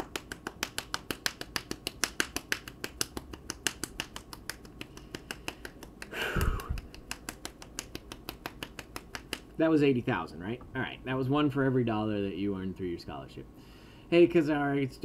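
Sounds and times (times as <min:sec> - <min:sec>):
person clapping hands: 0:00.0 - 0:09.6.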